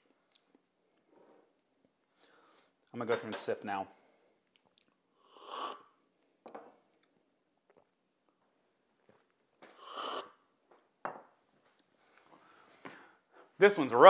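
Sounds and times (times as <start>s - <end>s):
loud coffee slurps: 5.3s - 5.9s, 9.8s - 10.4s.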